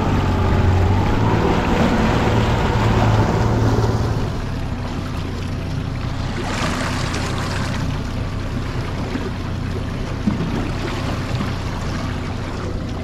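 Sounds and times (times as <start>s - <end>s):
outboard motor running: 0.0s - 13.0s
water rushing along hull: 0.0s - 13.0s.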